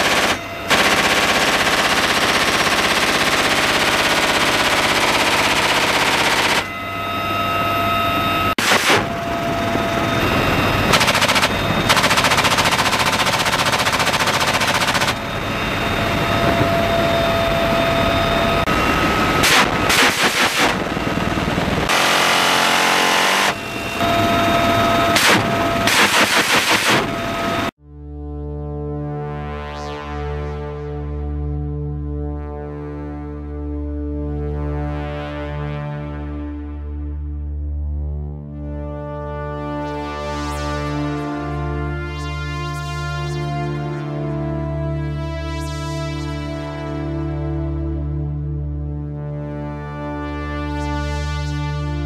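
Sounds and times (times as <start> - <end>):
machine gun firing rapid bursts: 0.0 - 6.7, 8.6 - 9.1, 10.9 - 15.3, 19.4 - 20.9, 25.2 - 27.3
helicopter whine: 0.0 - 27.8.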